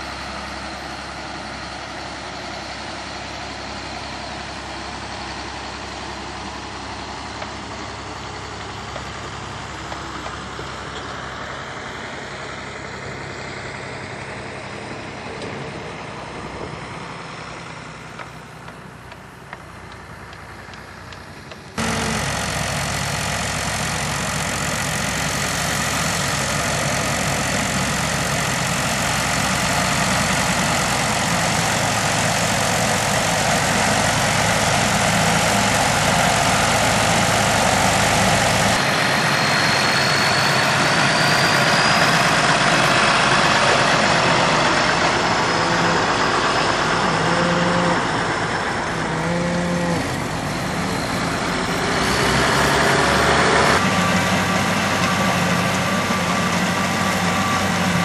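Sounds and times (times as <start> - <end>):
tractor engine running: 0.0 - 58.0
bale processor shredding straw: 21.8 - 38.8, 47.1 - 48.0.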